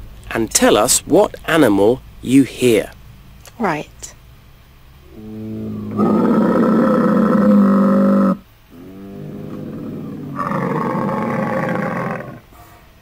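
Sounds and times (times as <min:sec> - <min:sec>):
camel calling: 0:05.1 - 0:12.5.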